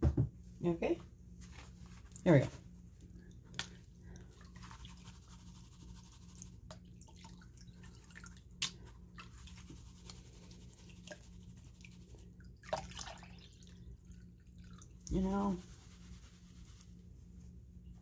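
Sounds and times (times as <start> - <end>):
water sloshing and dripping: 6.4 - 15.1
small water splashes: 6.7 - 9.6, 12.5 - 15.0.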